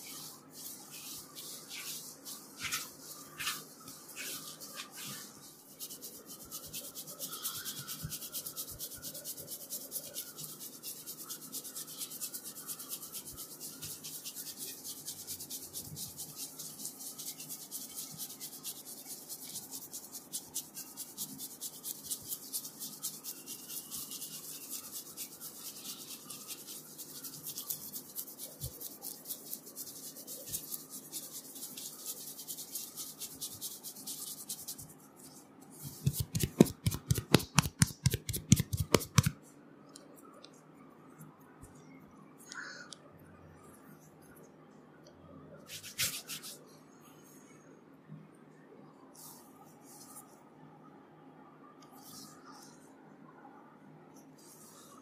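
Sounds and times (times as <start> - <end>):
fingertips rubbing through hair: 0.0 - 39.4, 45.7 - 46.6.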